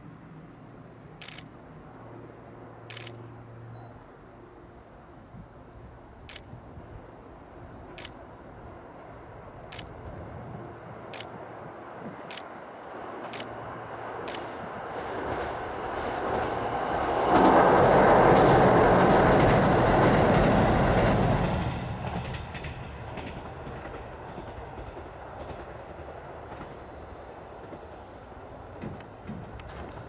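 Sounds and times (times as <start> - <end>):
diesel train engines passing: 0.0 - 30.0
train wheels on rails: 7.7 - 30.0.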